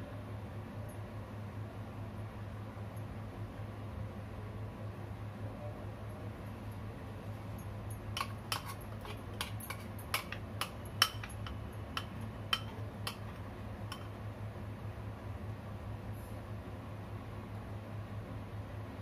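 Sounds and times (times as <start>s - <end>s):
steady low hum: 0.0s - 19.0s
knife scraping glass bowl: 8.2s - 14.1s.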